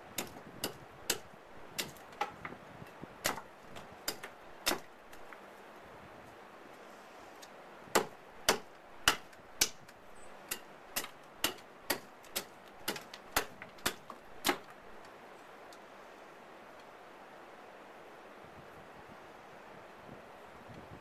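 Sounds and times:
hatchet knocks splitting wood: 0:00.2 - 0:02.6, 0:03.2 - 0:05.4, 0:07.9 - 0:14.8.

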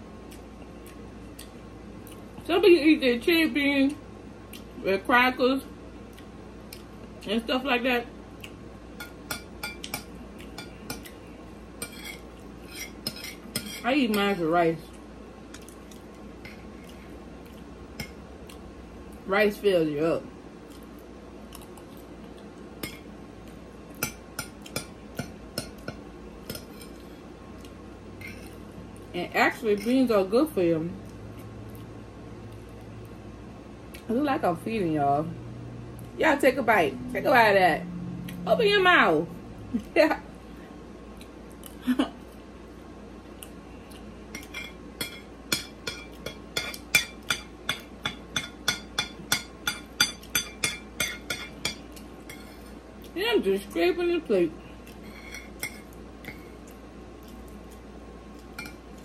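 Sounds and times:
cutlery scraping ceramic plate: 0:11.8 - 0:13.9, 0:55.0 - 0:56.4.

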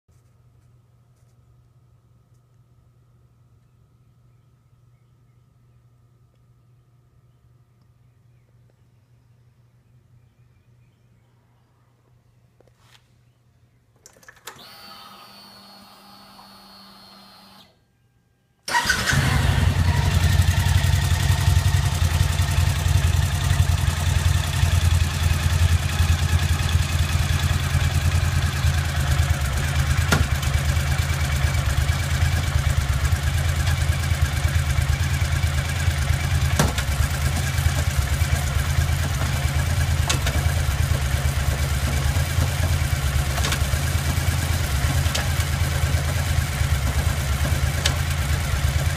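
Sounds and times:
motorcycle engine idling: 0:19.0 - 0:48.9.

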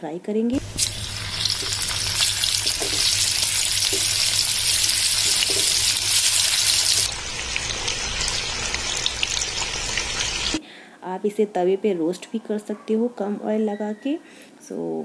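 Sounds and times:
food sizzling in hot oil: 0:00.5 - 0:10.6.

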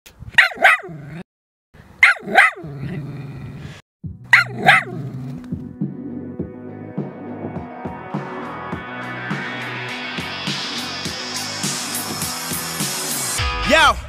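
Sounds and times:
dog barking: 0:00.4 - 0:01.2, 0:02.0 - 0:02.7, 0:04.3 - 0:05.1
music: 0:04.0 - 0:14.0.

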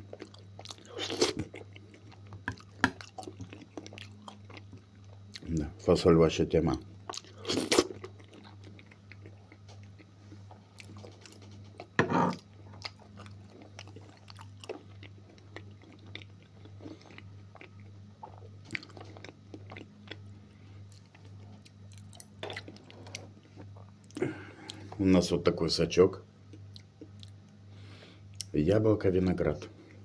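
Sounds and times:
close chewing mouth sounds: 0:00.0 - 0:05.6, 0:07.1 - 0:11.9, 0:12.7 - 0:24.9, 0:26.5 - 0:27.4
steady low hum: 0:00.0 - 0:30.0.

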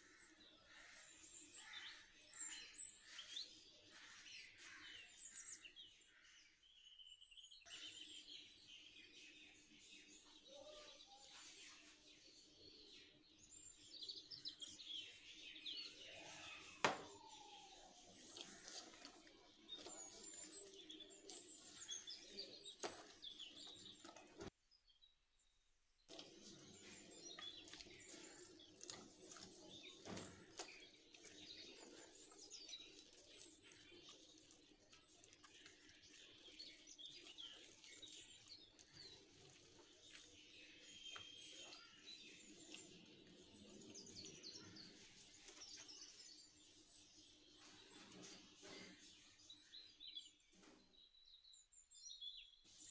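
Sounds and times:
small birds chirping: 0:00.0 - 0:52.9
hands squelching dough: 0:16.6 - 0:24.5, 0:26.1 - 0:46.2.

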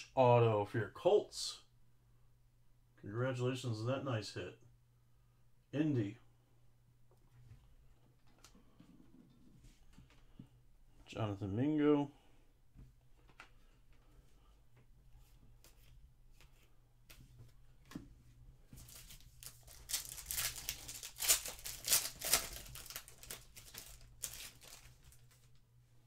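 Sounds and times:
foil pack tearing and crinkling: 0:18.8 - 0:25.5.

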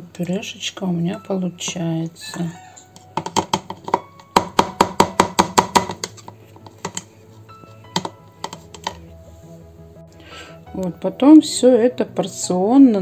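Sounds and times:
soft background music: 0:00.0 - 0:13.0
blender shaft knocking plastic bowl: 0:03.2 - 0:07.1, 0:07.9 - 0:09.0.

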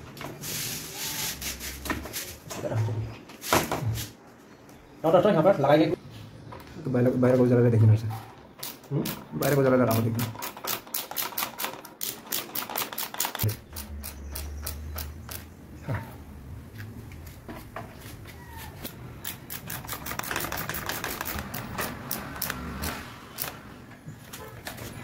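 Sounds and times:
screwdriver ratchet clicking: 0:19.2 - 0:23.6.

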